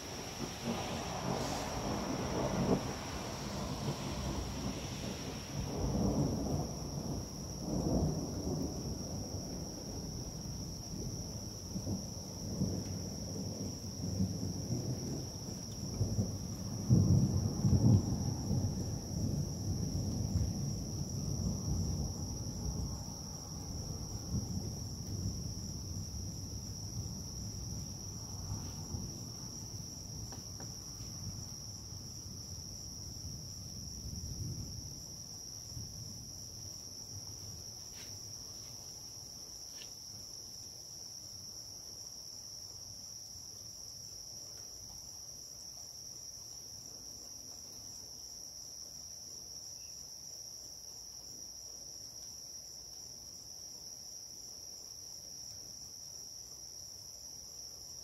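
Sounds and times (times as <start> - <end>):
distant thunder rumble: 0.0 - 36.4
night insects trilling: 0.0 - 58.0.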